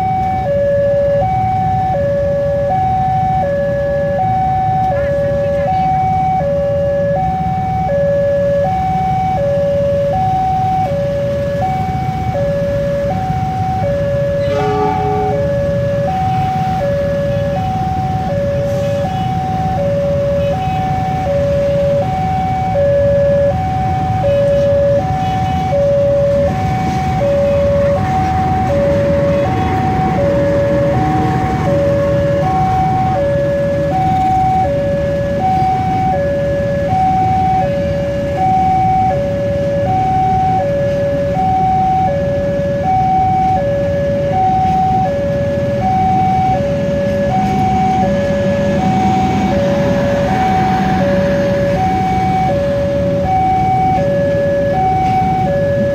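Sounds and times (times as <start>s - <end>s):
two-tone crossing alarm: 0.0s - 55.9s
passing train: 10.0s - 41.4s, 42.4s - 55.9s
short horn toot: 14.4s - 15.5s.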